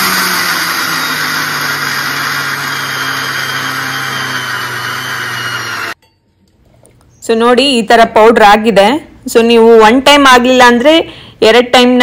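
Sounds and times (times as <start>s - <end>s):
mixer grinder running: 0.0s - 6.0s.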